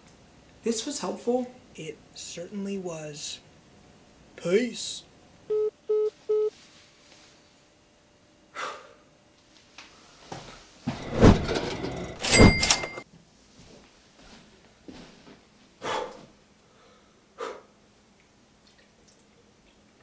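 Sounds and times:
mobile phone beeps: 0:05.5 - 0:06.5
thumps and knocking: 0:10.9 - 0:13.0.

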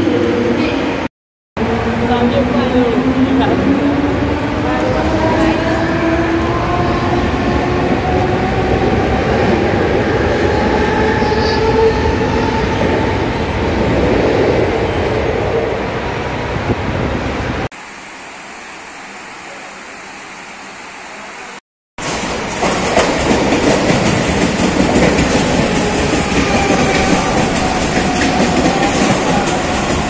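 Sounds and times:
train wheels rumbling: 0:00.0 - 0:17.7, 0:22.0 - 0:30.0.

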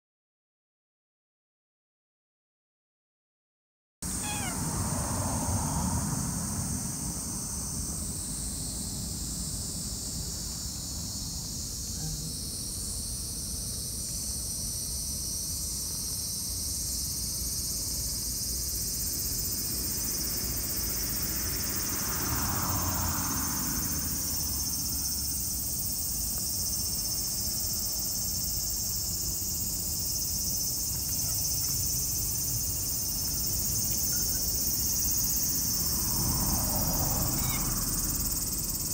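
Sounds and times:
insects chirring: 0:04.0 - 0:38.9.

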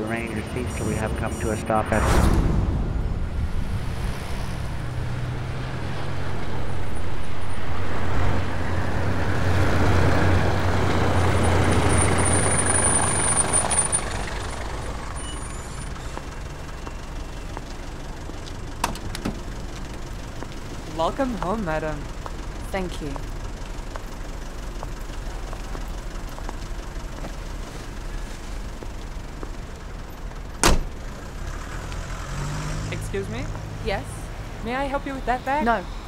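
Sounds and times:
diesel taxi engine running: 0:00.0 - 0:01.8, 0:03.1 - 0:36.0
thin high whine: 0:00.0 - 0:02.3.

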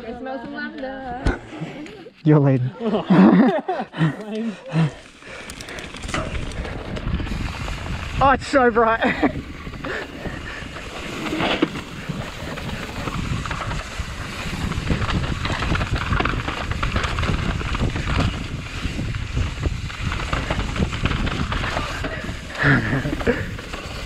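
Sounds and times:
bike rattling: 0:03.4 - 0:24.0
bike tyres rolling on dirt: 0:03.9 - 0:24.0
wind buffeting microphone: 0:05.2 - 0:24.0.

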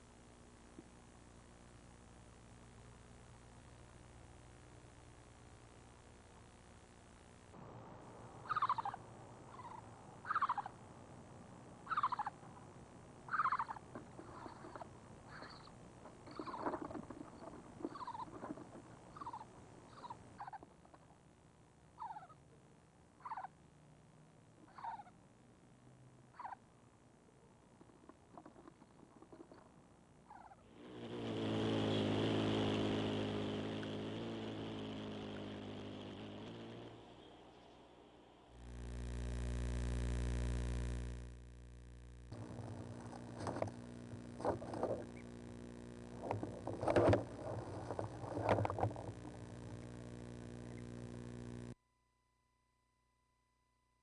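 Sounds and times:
owl trilled calls: 0:08.4 - 0:10.8, 0:11.8 - 0:12.4, 0:13.3 - 0:21.0, 0:22.0 - 0:22.4, 0:23.2 - 0:23.6, 0:24.7 - 0:25.2, 0:26.3 - 0:26.6, 0:30.3 - 0:30.7
motor humming: 0:30.7 - 0:51.8.

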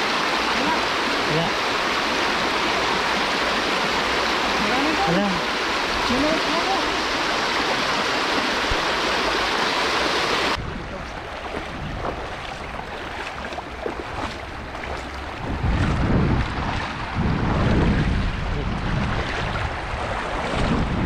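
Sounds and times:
river water rushing: 0:00.0 - 0:21.0
wind buffeting microphone: 0:10.5 - 0:21.0.

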